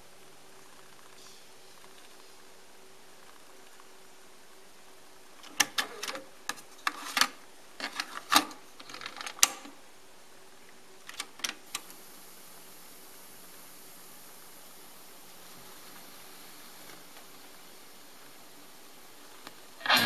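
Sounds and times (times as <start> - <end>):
cassette deck clicks and clunks: 5.4 - 9.8.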